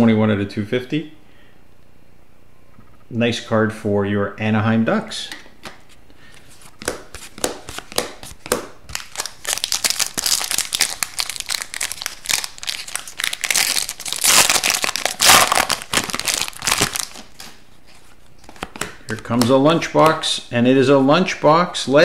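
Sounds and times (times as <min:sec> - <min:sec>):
foil wrapper crinkling: 0:08.9 - 0:17.6.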